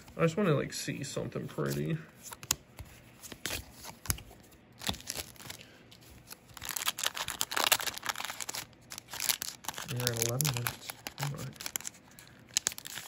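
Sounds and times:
foil wrapper tearing and crinkling: 4.8s - 5.6s, 6.4s - 13.0s.

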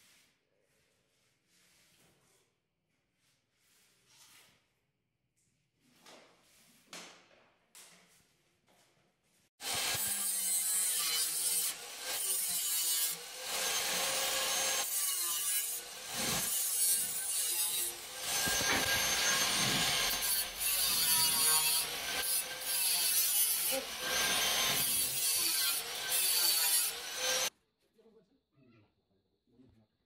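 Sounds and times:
angle grinder cutting metal: 9.6s - 27.5s.

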